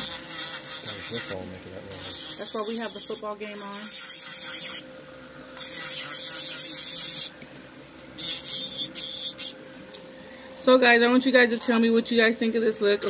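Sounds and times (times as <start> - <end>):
nail drill grinding nail: 0.0 - 4.8, 5.6 - 7.3, 8.2 - 9.6, 11.6 - 11.9
faint steady hum: 1.5 - 13.0.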